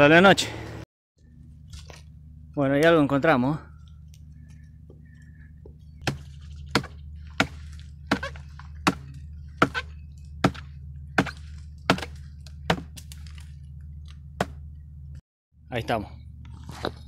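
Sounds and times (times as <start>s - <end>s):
hatchet chopping wood: 6.0s - 13.5s, 14.4s - 14.6s.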